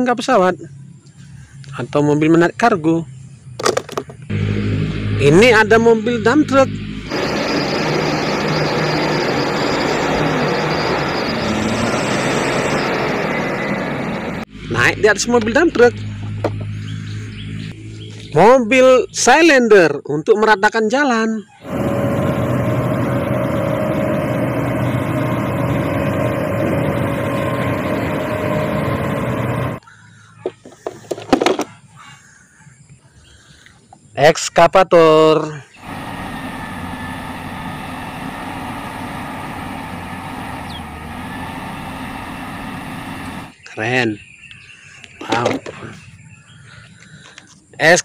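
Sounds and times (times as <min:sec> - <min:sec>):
truck diesel engine running: 0:04.3 - 0:17.7, 0:21.6 - 0:29.8, 0:35.8 - 0:43.6.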